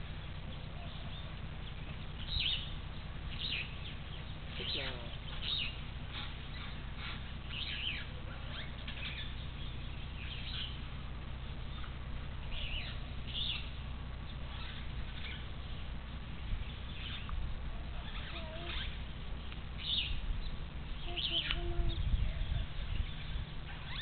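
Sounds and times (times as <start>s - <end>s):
low steady rumble: 0.0s - 24.0s
small animals chirping and squeaking: 16.8s - 19.1s, 21.0s - 24.0s.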